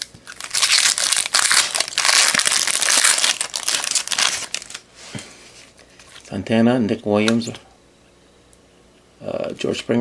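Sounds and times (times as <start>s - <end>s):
wrapper tearing and crinkling: 0.0s - 4.9s.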